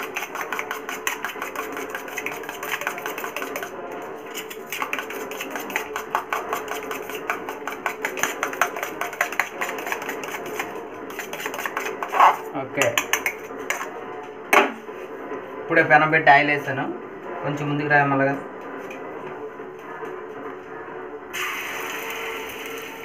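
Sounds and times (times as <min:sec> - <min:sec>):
spoon rattling in metal tumbler: 0:00.0 - 0:12.4.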